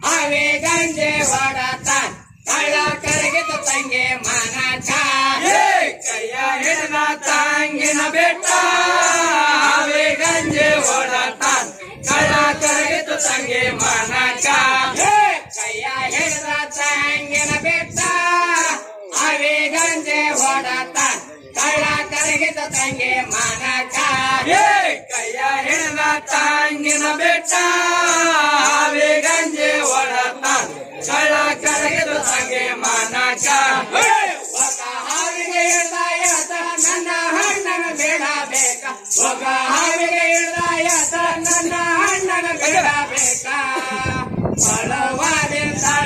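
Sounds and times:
group singing folk song: 0.0s - 46.0s
rhythmic high jingle: 25.1s - 44.0s.

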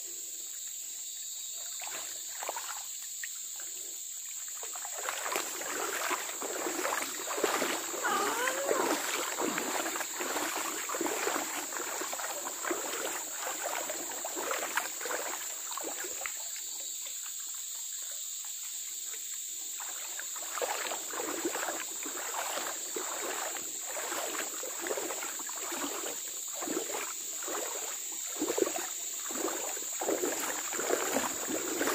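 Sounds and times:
splashing steps in a stream: 1.5s - 31.9s
high-pitched insect drone: 4.7s - 16.2s.

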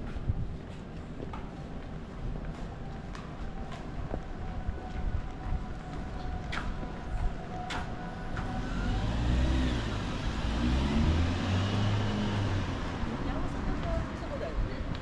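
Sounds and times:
vehicle engine passing: 8.4s - 13.6s.

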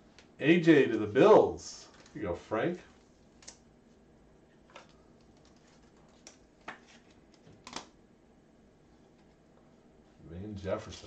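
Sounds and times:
cards clicking and tapping: 4.7s - 8.0s.

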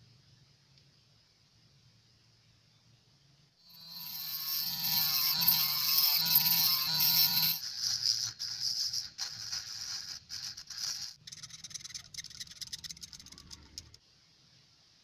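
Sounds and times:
rotary tool cutting plastic: 3.7s - 14.0s
hand tool scraping plastic: 4.2s - 14.0s.

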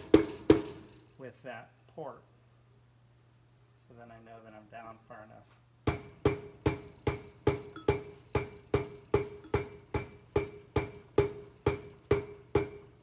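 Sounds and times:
mallet tapping metal drum: 5.9s - 12.8s.

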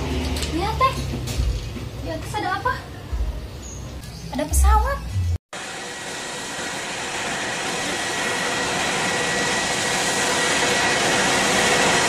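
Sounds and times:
jet engines roaring overhead: 5.6s - 12.0s.

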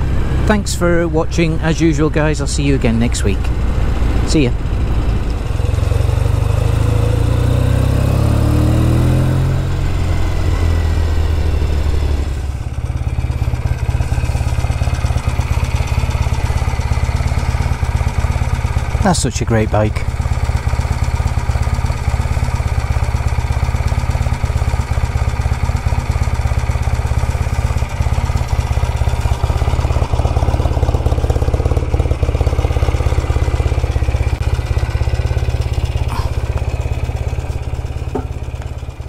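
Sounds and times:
motorcycle engine idling: 0.0s - 39.0s.

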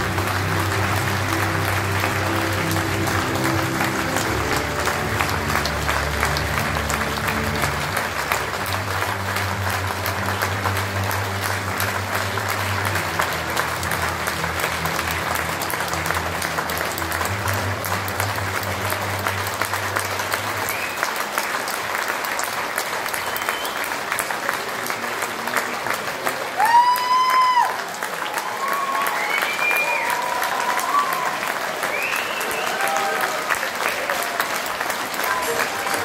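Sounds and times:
low sustained music: 0.0s - 20.6s
audience applauding: 0.0s - 36.0s.

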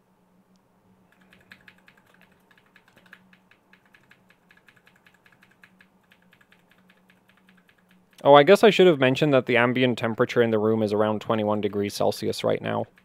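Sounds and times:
faint steady hum: 0.0s - 13.0s
keyboard key tapping: 1.1s - 8.3s.

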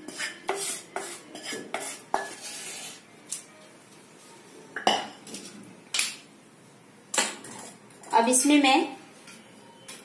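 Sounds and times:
wooden spatula scraping pan: 0.0s - 3.0s.

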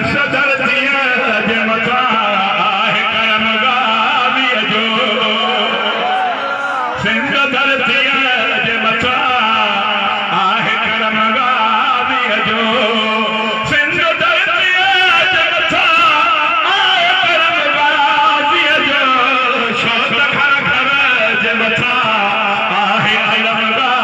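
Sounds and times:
man singing through loudspeaker: 0.0s - 24.0s.

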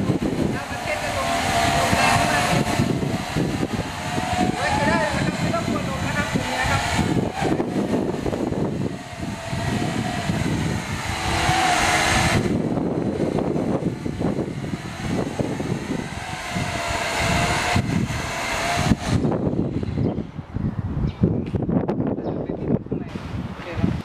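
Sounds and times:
drone propellers whining: 0.0s - 22.1s
wind buffeting microphone: 0.0s - 24.0s.

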